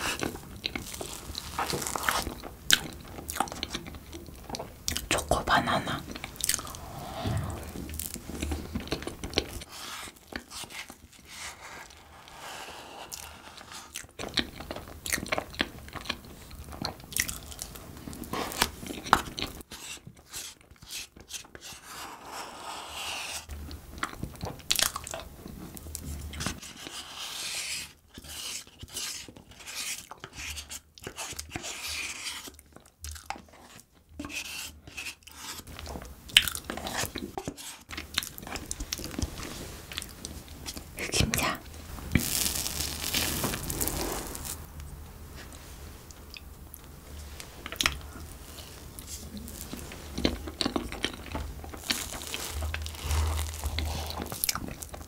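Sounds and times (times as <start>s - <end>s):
person chewing: 0.0s - 5.2s, 6.1s - 11.0s, 13.1s - 17.8s, 36.3s - 44.7s, 47.6s - 55.0s.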